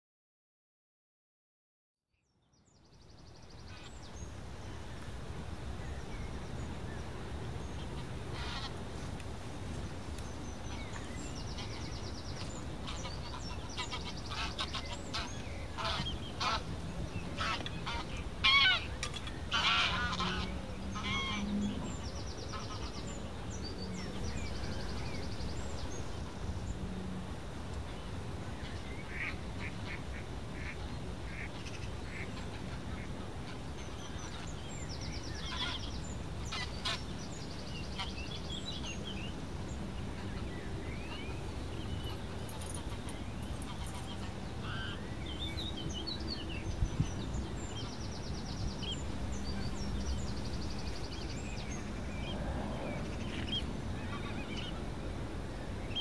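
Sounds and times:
geese honking: 12.8 - 16.7, 17.4 - 21.5.

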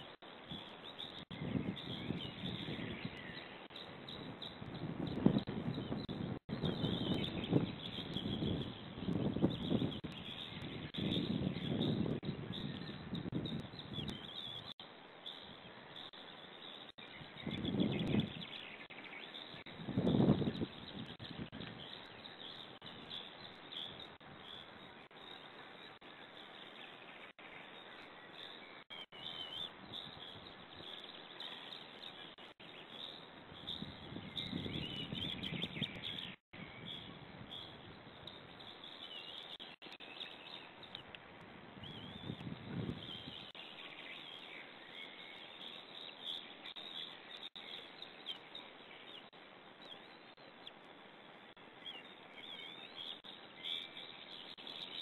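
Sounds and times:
songbirds singing: 0.0 - 55.0.

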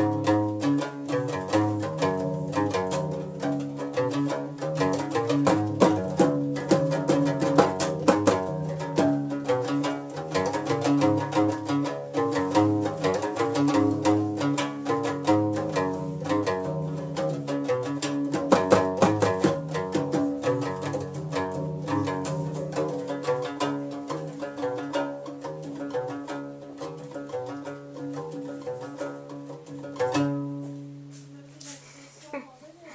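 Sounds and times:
plucked bass lute: 0.0 - 31.4.

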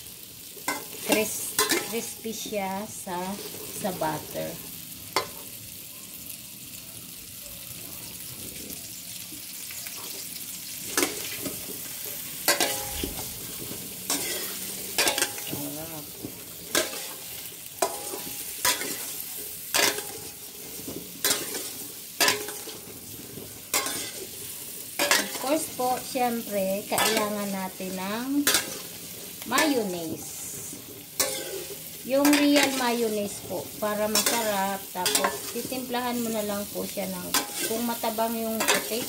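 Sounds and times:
potatoes sizzling in butter: 0.0 - 39.0
metal utensil scraping pan: 0.6 - 2.5, 9.9 - 39.0.

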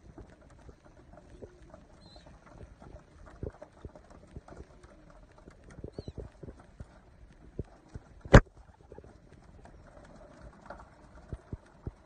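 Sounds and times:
pigeons pecking on wooden board: 0.0 - 12.0.

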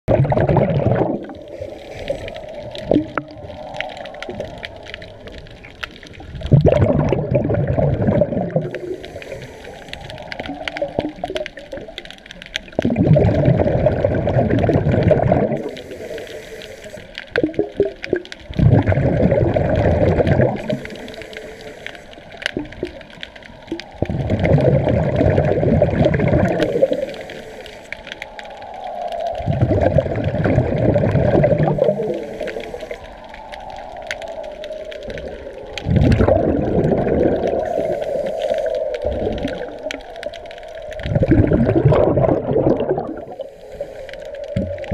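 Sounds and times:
exhaled bubbles rumbling underwater: 0.0 - 44.9
regulator inhalation hiss: 8.7 - 10.6, 15.6 - 17.2, 20.6 - 22.4, 26.6 - 28.1, 31.7 - 33.2, 37.6 - 39.0, 43.2 - 44.6.

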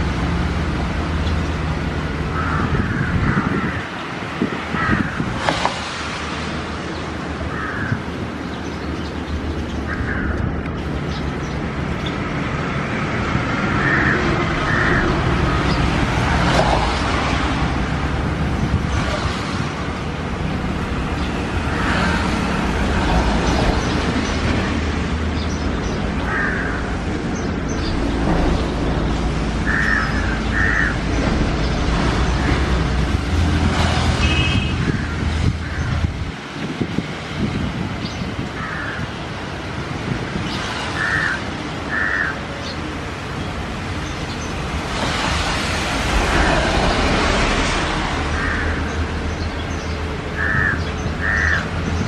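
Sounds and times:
road traffic rumble: 0.0 - 52.0.

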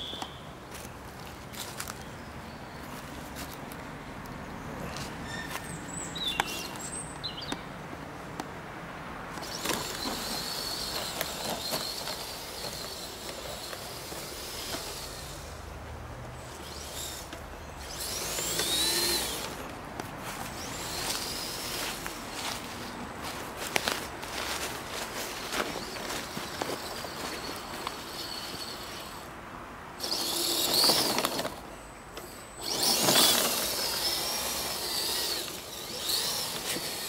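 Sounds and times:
model truck motor whine: 9.3 - 15.7, 16.4 - 22.2, 30.0 - 37.0
dry leaves rustling and crackling: 9.4 - 15.6, 16.4 - 29.2, 30.0 - 31.6, 32.6 - 37.0.

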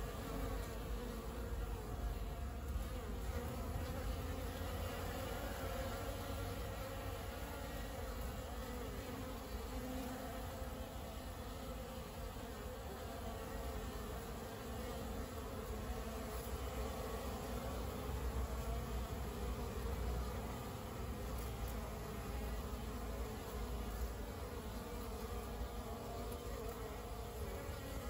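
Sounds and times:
honeybees buzzing: 0.0 - 28.0.

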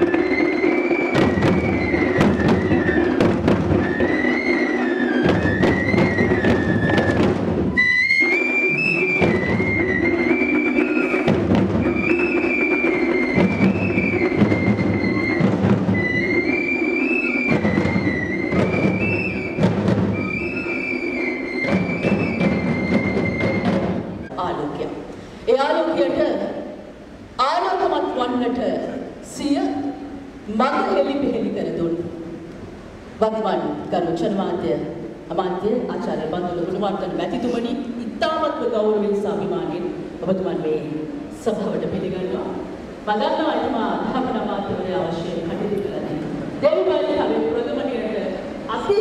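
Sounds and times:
hand drums beating: 0.0 - 24.4
wind instrument melody: 0.0 - 24.4.

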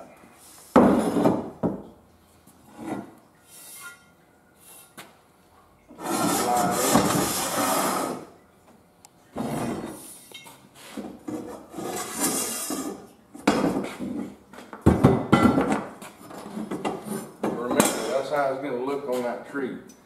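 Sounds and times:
metal rails scraping on wood: 6.0 - 8.3, 11.3 - 13.1.

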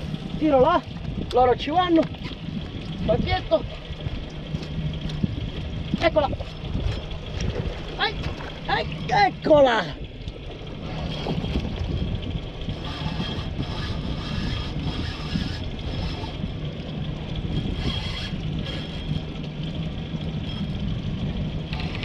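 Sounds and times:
outboard motor idling: 0.0 - 22.0
wind on microphone: 0.0 - 22.0
fishing reel whirring: 10.8 - 16.6, 17.4 - 19.4.

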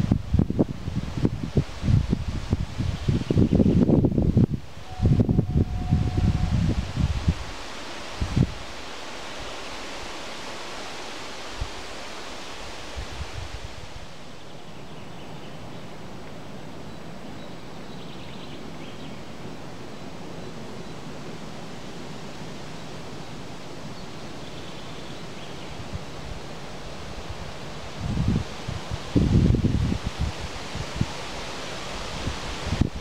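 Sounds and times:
wind buffets on microphone: 0.0 - 8.7, 12.8 - 14.2, 25.7 - 33.0
rustle of leaves in wind: 0.0 - 33.0.

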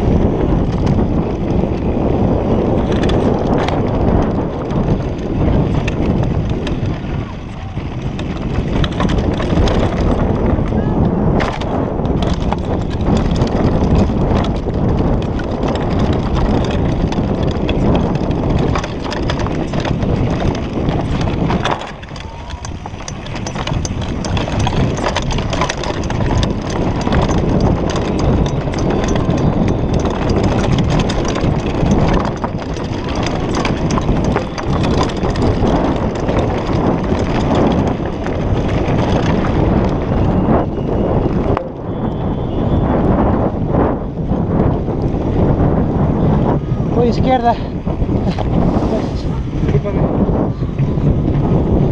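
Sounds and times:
low rumble: 0.0 - 51.9
mountain bike rattling over gravel: 0.0 - 51.9.

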